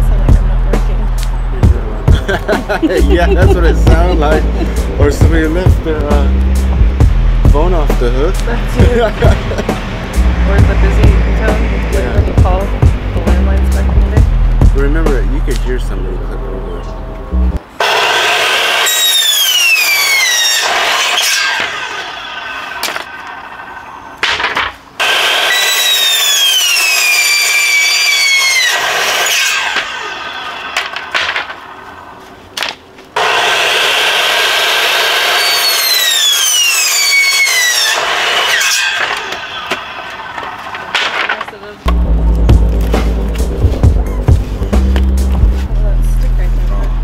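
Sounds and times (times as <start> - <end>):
miter saw cutting boards: 17.7 - 44.0
saw motor whine winding down: 17.8 - 24.2, 25.0 - 31.9, 33.2 - 41.0
boards knocking: 24.2 - 24.8, 30.8 - 31.6.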